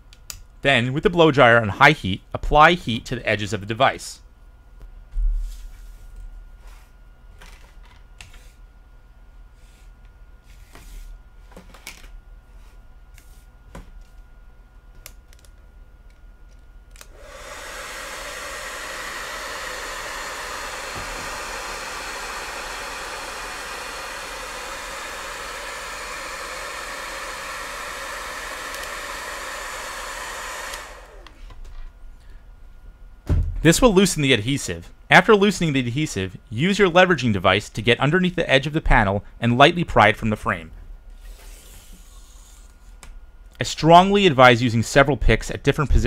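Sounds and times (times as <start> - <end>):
hair dryer running: 17.0 - 31.6.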